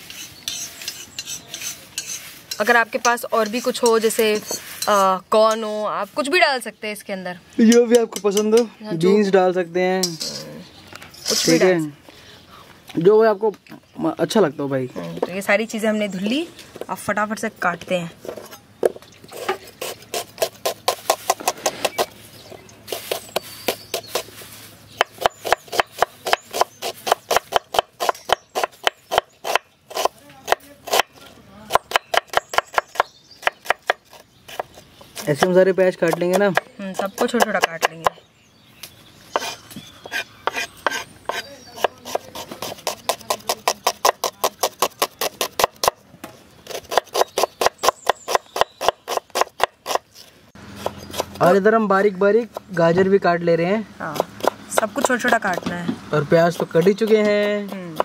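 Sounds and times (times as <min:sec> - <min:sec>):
knife chopping on wooden board: 0:25.0 - 0:31.1, 0:31.7 - 0:38.2, 0:39.4 - 0:46.0, 0:46.7 - 0:50.0, 0:54.1 - 0:56.0.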